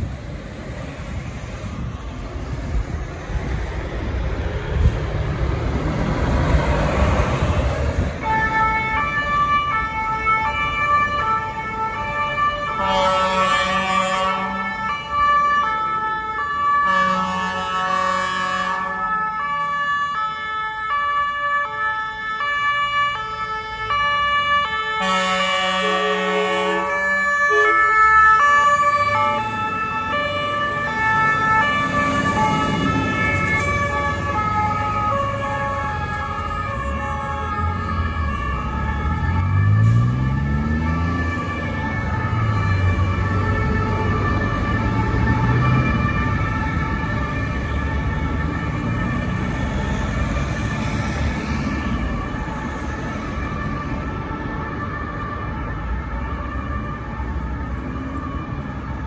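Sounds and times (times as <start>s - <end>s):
fire engine sirens: 0.0s - 59.0s
air horn blasts: 12.8s - 14.6s, 16.9s - 19.0s, 25.0s - 26.9s.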